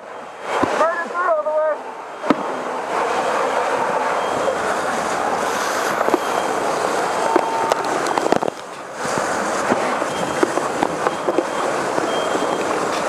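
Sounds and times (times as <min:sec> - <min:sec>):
fire crackling: 0:00.0 - 0:13.0
house fire roaring: 0:00.0 - 0:13.0
short steady beep: 0:06.0 - 0:06.6, 0:07.2 - 0:08.5, 0:10.1 - 0:12.8.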